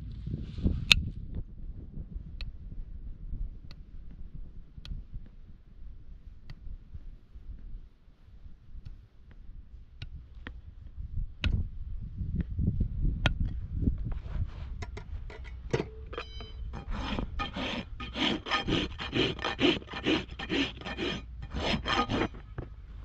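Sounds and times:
rasp filing hoof: 0:14.4 - 0:23.0
hoof nippers snipping: 0:14.8 - 0:22.8.

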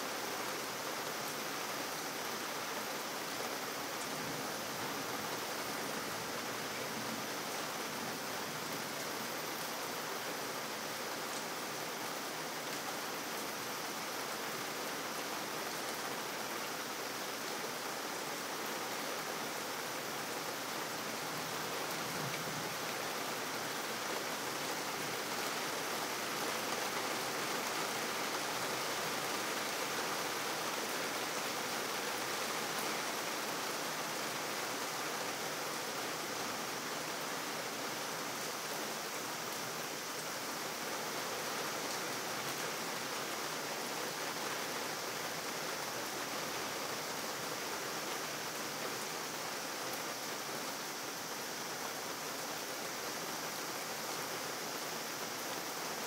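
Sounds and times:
rain falling on wet pavement: 0:00.0 - 0:56.0.

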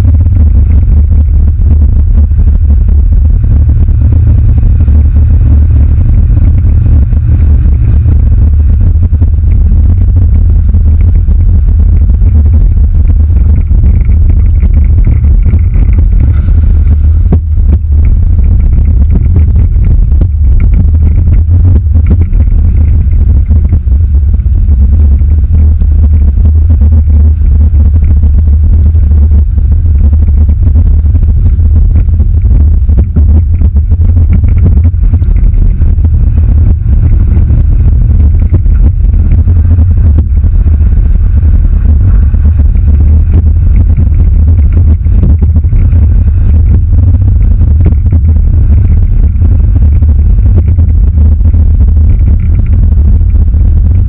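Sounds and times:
truck driving with heavy rumble: 0:00.0 - 0:54.0.

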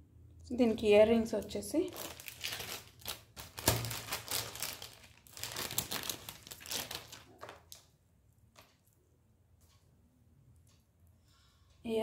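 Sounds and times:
packaging crinkling: 0:01.9 - 0:07.9.

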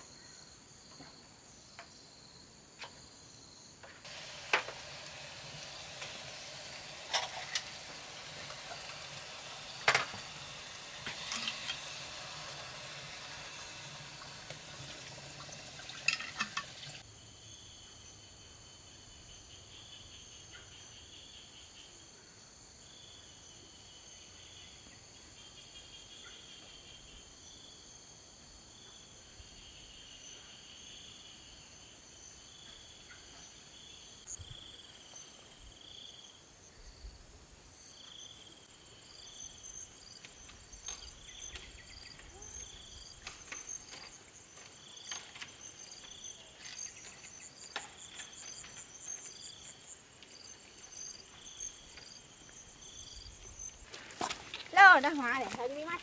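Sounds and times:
insects trilling and chirping: 0:00.0 - 0:56.0
steady hiss: 0:03.9 - 0:17.1.

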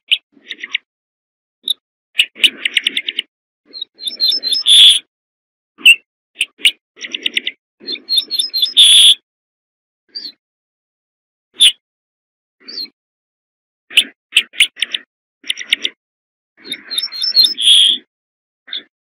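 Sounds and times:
bunting singing: 0:01.6 - 0:05.1, 0:05.8 - 0:09.2, 0:16.6 - 0:18.1.

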